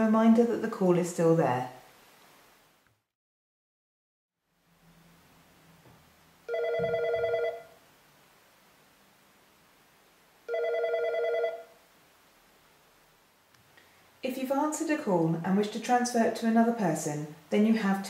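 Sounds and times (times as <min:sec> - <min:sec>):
desk phone warbling ring: 0:06.5 - 0:07.8, 0:10.5 - 0:11.8.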